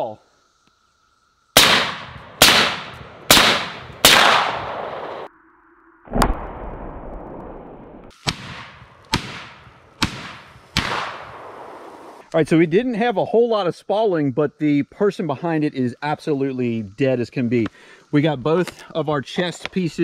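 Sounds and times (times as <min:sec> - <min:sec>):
rifle shots with echo: 0:01.6 - 0:05.3, 0:08.3 - 0:11.8.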